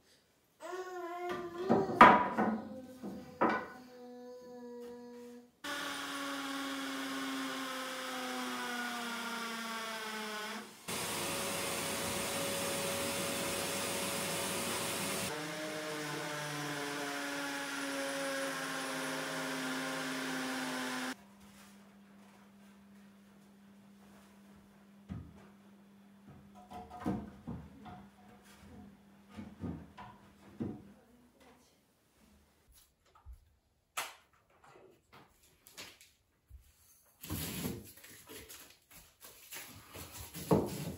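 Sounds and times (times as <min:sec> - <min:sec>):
cordless drill running: 0:05.7 - 0:21.2.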